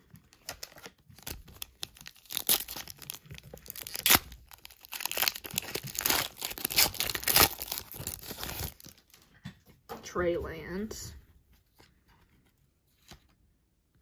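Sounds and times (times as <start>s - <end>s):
foil wrapper tearing and crinkling: 0.2s - 9.1s.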